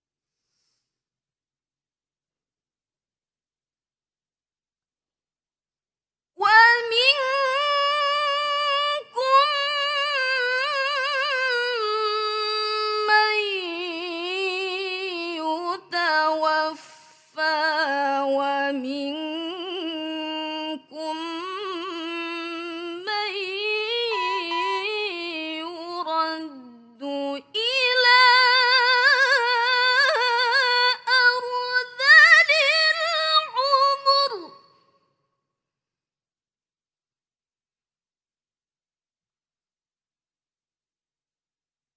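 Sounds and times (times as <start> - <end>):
woman reciting melodically: 6.4 - 34.6.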